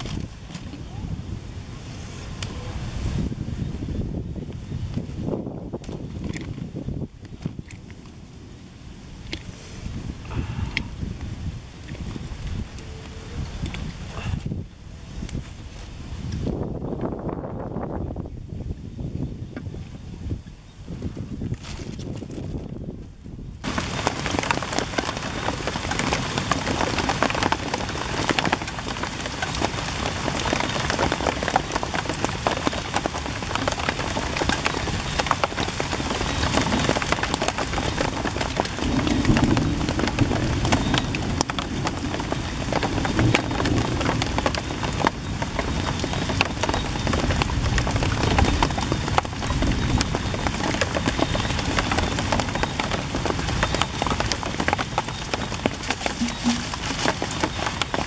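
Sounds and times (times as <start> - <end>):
rain falling: 0.0 - 19.1, 22.1 - 58.0.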